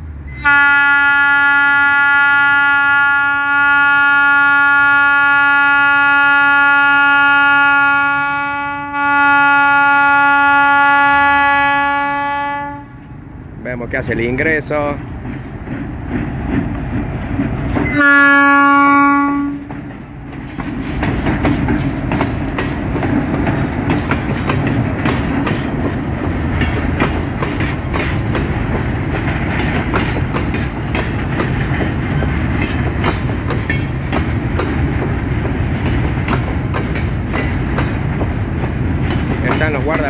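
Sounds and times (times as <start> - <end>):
train rumbling past: 0.0 - 40.0
locomotive horn blast: 0.3 - 13.0, 17.8 - 19.8.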